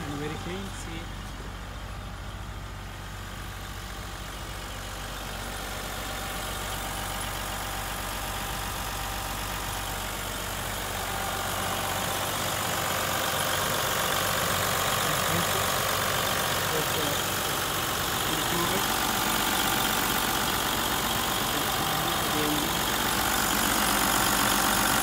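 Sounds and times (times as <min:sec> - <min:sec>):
diesel engine idling: 0:00.0 - 0:25.0.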